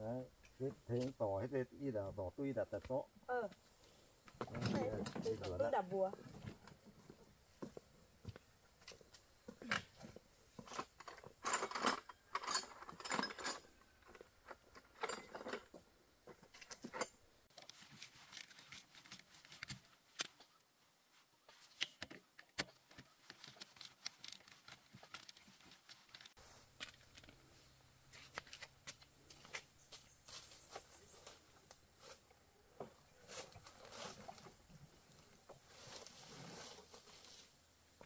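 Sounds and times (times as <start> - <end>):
metal hand tools clinking: 10.7 - 15.7.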